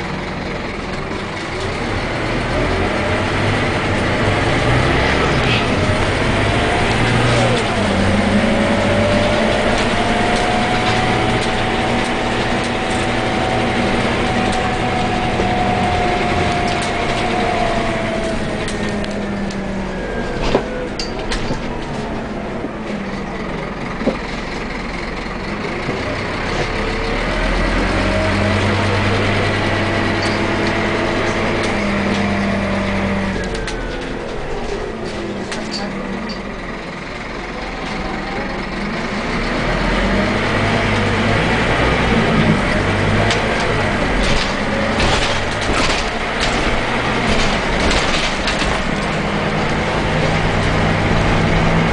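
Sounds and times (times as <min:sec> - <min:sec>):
bus engine whining: 0:00.0 - 0:51.9.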